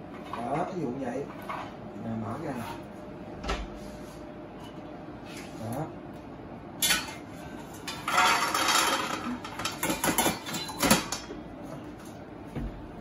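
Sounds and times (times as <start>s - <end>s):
nuts rattling into metal bowl: 8.1s - 9.8s.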